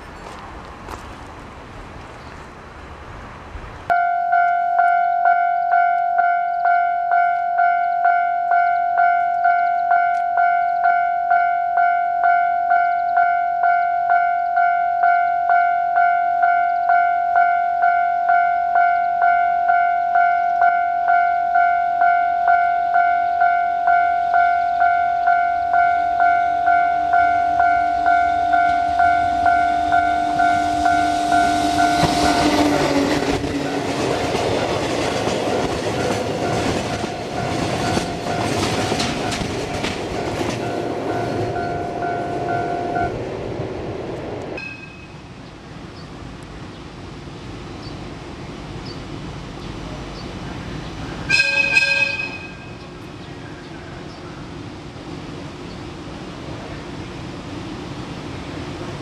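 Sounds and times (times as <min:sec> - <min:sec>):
train passing with rushing noise: 0:00.0 - 0:59.0
level crossing bell ringing: 0:03.9 - 0:32.0, 0:40.6 - 0:43.1
wheels clattering over rail joints: 0:28.0 - 0:43.1.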